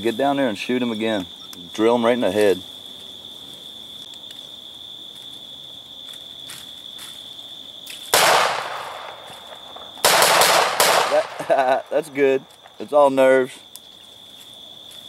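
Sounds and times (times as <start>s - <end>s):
crickets trilling: 0.0s - 15.0s
rifle shots: 8.1s - 11.5s.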